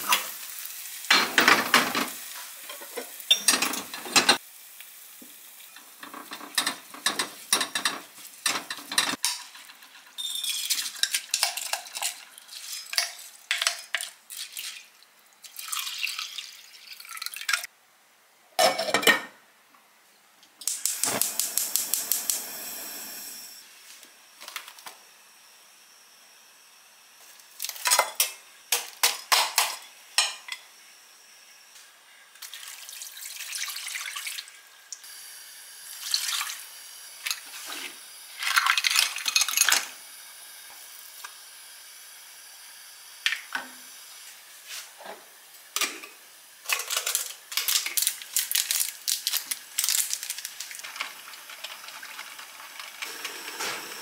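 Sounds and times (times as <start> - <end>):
utensils clinking against pan: 1.1 - 4.4, 5.8 - 14.1, 27.8 - 30.6, 45.8 - 48.2
water poured into pan: 10.3 - 17.7, 32.4 - 34.6, 36.0 - 36.6.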